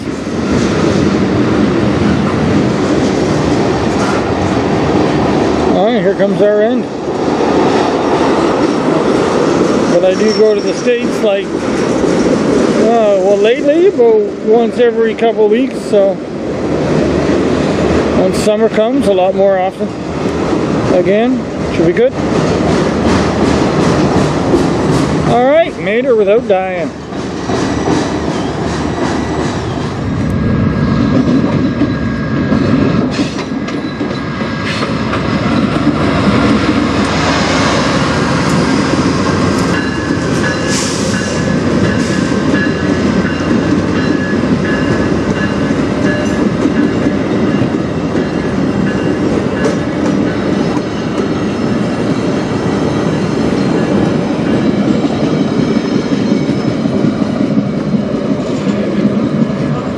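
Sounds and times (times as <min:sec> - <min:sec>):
freight train rumbling: 0:00.0 - 0:59.9
high wheel squeal: 0:09.9 - 0:10.9.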